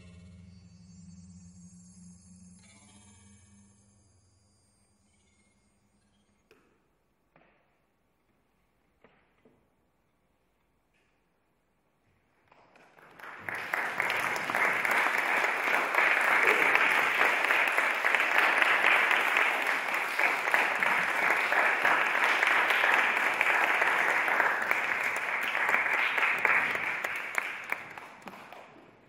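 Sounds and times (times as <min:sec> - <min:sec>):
audience applauding: 0:12.5 - 0:29.0.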